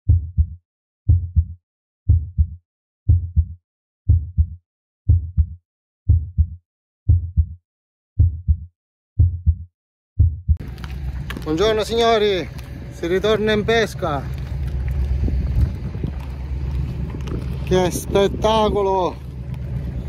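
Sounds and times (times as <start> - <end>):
heartbeat thumps: 0.1 - 7.6, 8.2 - 10.6, 14.8 - 17.7.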